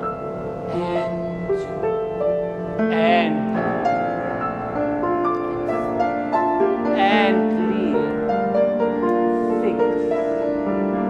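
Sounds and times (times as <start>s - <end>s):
piano music: 0.0s - 11.0s.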